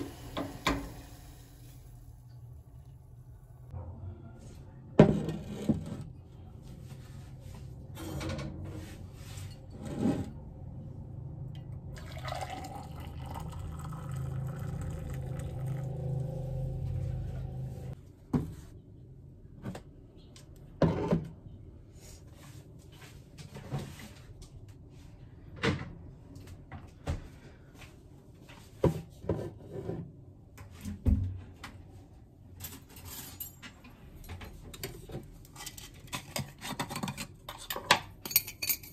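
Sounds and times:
water running into mug: 0:12.0 - 0:16.2.

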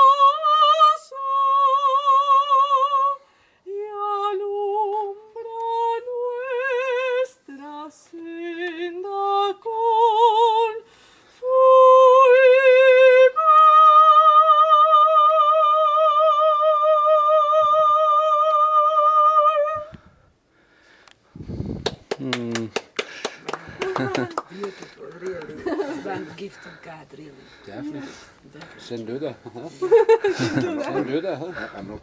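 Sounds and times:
woman singing with vibrato: 0:00.0 - 0:20.0.

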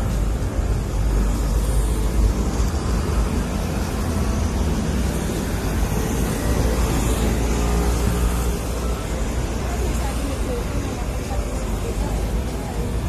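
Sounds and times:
low rumble of city noise: 0:00.0 - 0:13.0.

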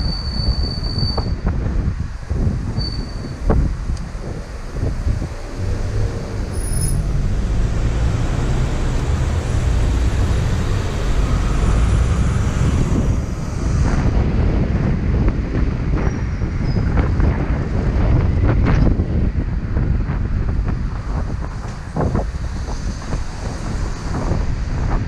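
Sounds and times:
road and engine rumble: 0:00.0 - 0:25.0
wind on microphone: 0:00.0 - 0:25.0.

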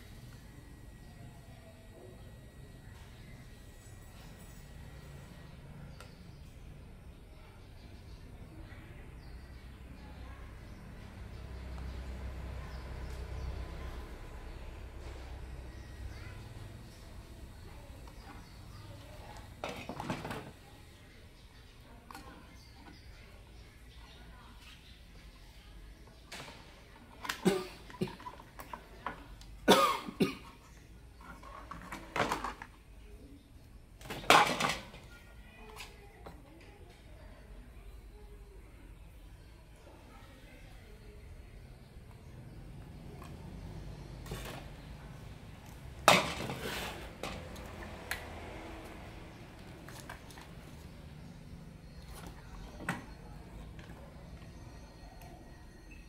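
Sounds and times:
plastic parts clattering on workbench: 0:31.3 - 0:32.7, 0:34.0 - 0:35.1, 0:46.0 - 0:47.7.

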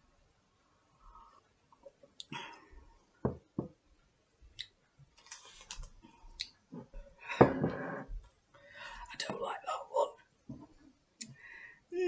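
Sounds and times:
mug knocking on table: 0:03.2 - 0:03.8
mouth clicks and lip smacks: 0:06.4 - 0:06.6.

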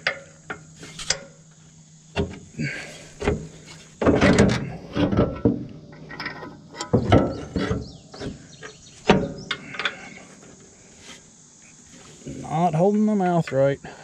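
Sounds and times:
steel parts scraping: 0:00.6 - 0:01.4.

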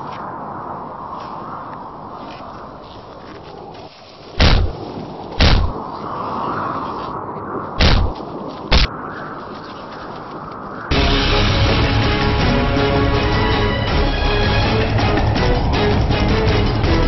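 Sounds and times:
steady background rush: 0:00.0 - 0:06.3, 0:07.0 - 0:08.9, 0:10.2 - 0:17.0
loud sharp bangs: 0:04.4 - 0:04.7, 0:05.4 - 0:05.7, 0:07.8 - 0:08.1.

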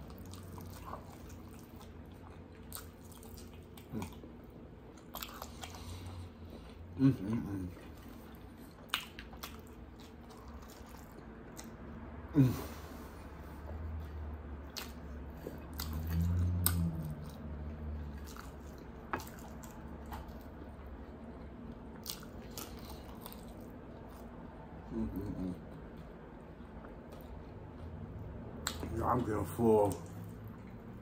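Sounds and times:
chewing and biting: 0:00.0 - 0:12.0, 0:13.5 - 0:24.4, 0:25.1 - 0:31.0
short vocal sound: 0:24.9 - 0:25.6.

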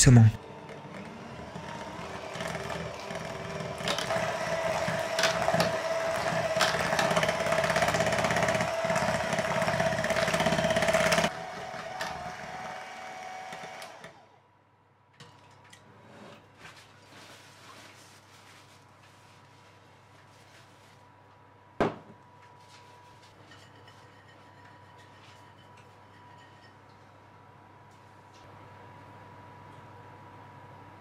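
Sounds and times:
electric hand mixer whining: 0:00.4 - 0:14.4.

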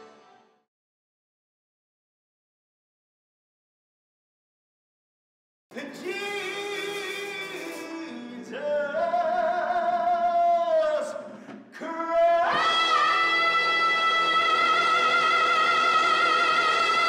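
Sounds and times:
person singing long notes with vibrato: 0:11.8 - 0:17.0.

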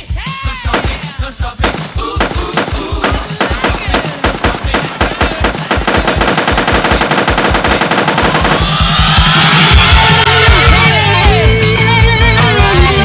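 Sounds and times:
gunshots and automatic fire: 0:00.8 - 0:09.3.

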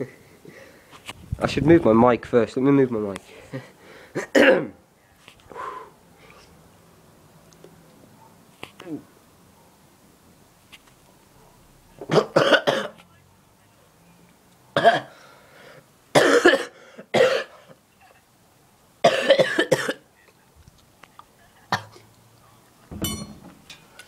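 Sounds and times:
person coughing hard: 0:04.2 - 0:04.8, 0:12.1 - 0:13.0, 0:14.8 - 0:15.1, 0:16.1 - 0:17.6, 0:19.0 - 0:20.0.

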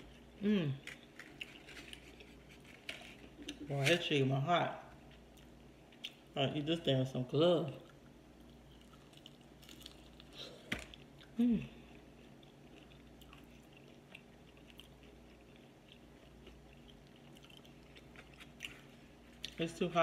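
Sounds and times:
person chewing: 0:00.0 - 0:03.7, 0:07.8 - 0:19.6.

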